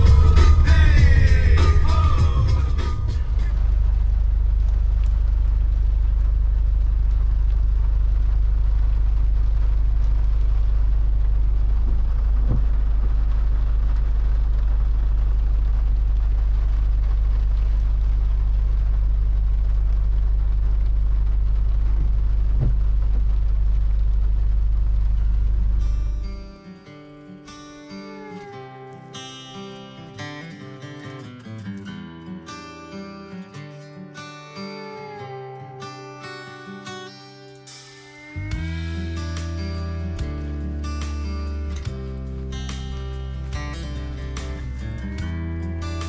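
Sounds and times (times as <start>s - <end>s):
vehicle low rumble: 0.0s - 26.5s, 38.4s - 46.0s.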